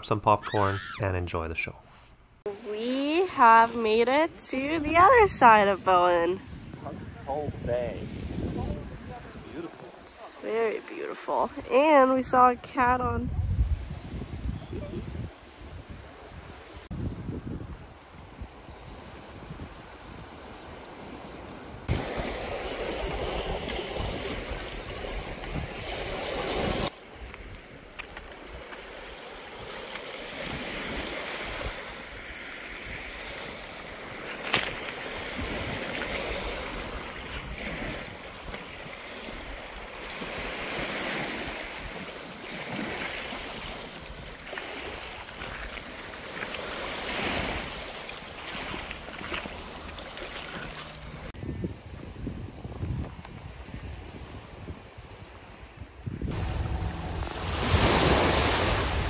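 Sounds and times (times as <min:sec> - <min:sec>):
wind on microphone: 0:03.0 - 0:10.3, 0:11.4 - 0:59.0
waves washing on pebbles: 0:21.9 - 0:51.3, 0:56.3 - 0:59.0.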